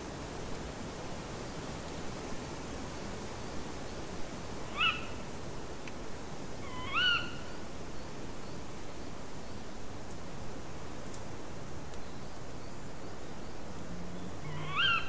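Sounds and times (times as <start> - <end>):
steady hiss: 0.0 - 14.7
owl calling: 4.7 - 5.2, 6.6 - 7.6, 14.4 - 15.0.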